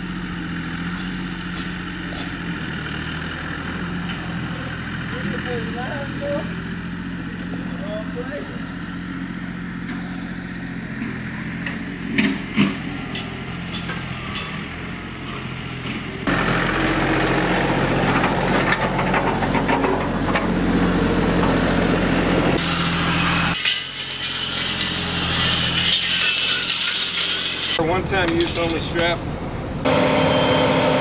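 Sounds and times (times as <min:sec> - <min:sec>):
engine idling: 0:00.0 - 0:22.6
tractor engine running: 0:00.0 - 0:31.0
blade scraping dirt: 0:22.6 - 0:27.8.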